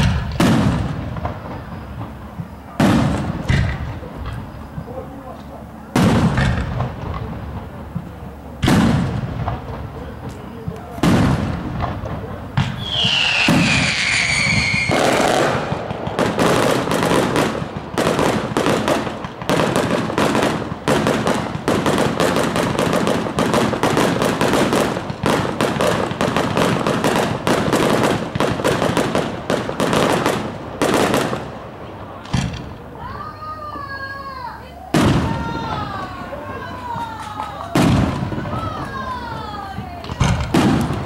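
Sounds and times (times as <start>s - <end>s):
fireworks popping and crackling: 0.0s - 41.0s
firework whistle: 12.6s - 19.0s.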